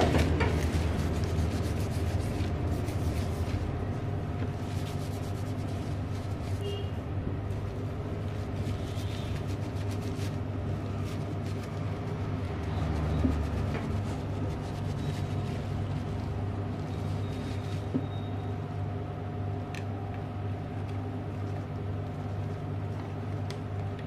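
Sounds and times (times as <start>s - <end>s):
steady low hum: 0.0s - 24.0s
tissue rubbing plastic casing: 7.5s - 17.9s.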